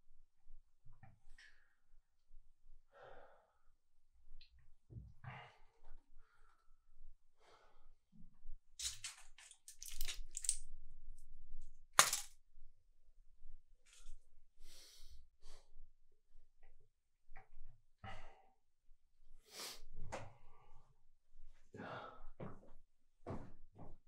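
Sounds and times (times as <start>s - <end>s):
blister pack crinkling: 8.8s - 10.6s, 12.0s - 12.3s
man breathing heavily and sighing: 21.7s - 22.6s.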